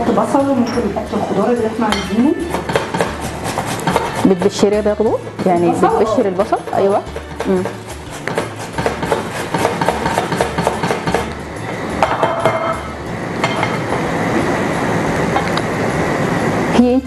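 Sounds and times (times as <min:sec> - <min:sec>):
vegetables grated on metal grater: 0:02.5 - 0:05.6, 0:06.2 - 0:11.3.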